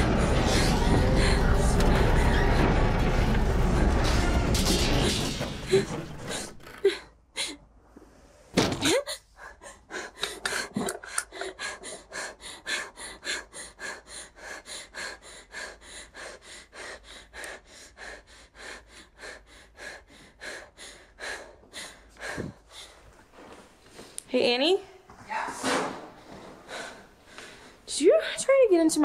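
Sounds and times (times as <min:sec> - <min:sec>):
woman panting fast: 0:00.0 - 0:02.7, 0:08.9 - 0:23.3, 0:26.2 - 0:28.4.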